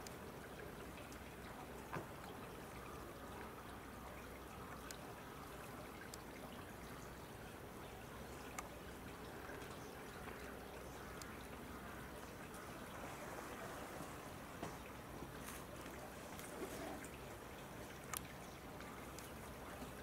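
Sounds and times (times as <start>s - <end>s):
light sharp ticks: 0.0s - 0.2s, 4.7s - 5.1s, 5.9s - 6.4s, 8.4s - 11.4s, 17.7s - 20.0s
faint rushing noise: 12.5s - 17.0s.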